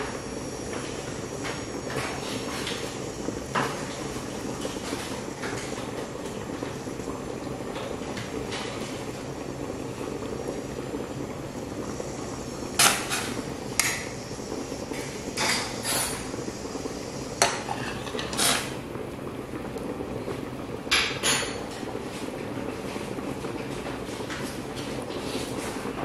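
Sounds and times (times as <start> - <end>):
pot boiling with bubbling rumble: 0.0 - 26.0
kitchenware clinking: 20.9 - 21.6.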